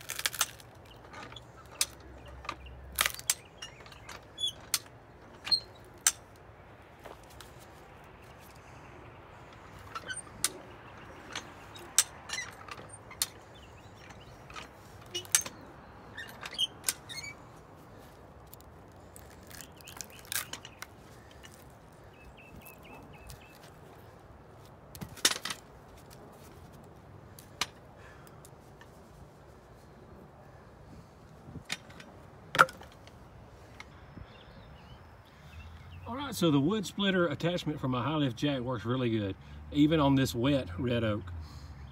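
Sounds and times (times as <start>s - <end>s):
wood cracking: 0.0s - 7.7s, 17.9s - 24.1s.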